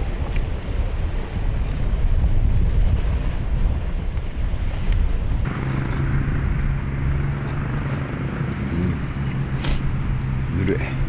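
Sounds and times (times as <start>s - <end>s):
wind on microphone: 0.0s - 11.0s
engine running hum: 5.4s - 11.0s.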